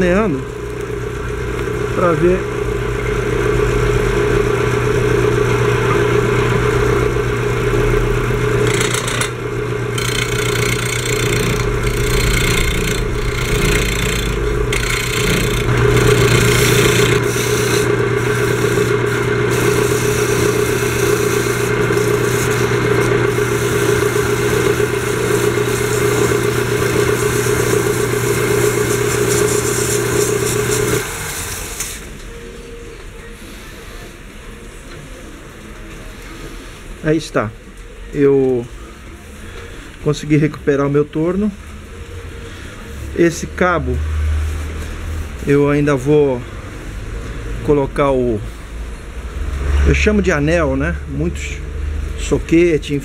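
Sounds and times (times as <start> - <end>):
wood lathe motor humming: 0.0 - 32.0
chisel scraping spinning wood: 5.9 - 31.6.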